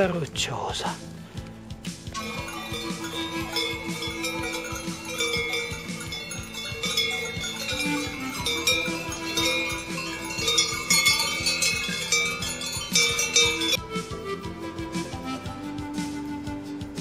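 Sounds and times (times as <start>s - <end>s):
cowbells clanging: 2.1s - 13.8s.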